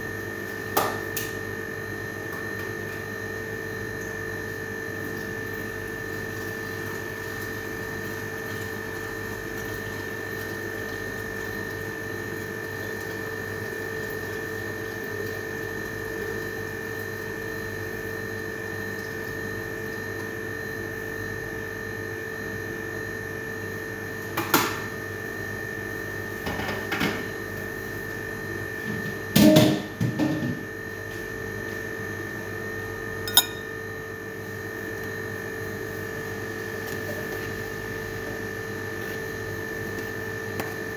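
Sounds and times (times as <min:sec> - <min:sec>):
kitchen appliance humming with whine: 0:00.0 - 0:40.9.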